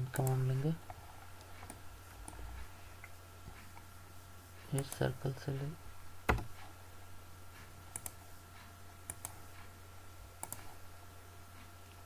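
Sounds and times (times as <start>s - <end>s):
low steady hum: 0.0s - 12.0s
mouse and keyboard clicks: 10.4s - 10.7s.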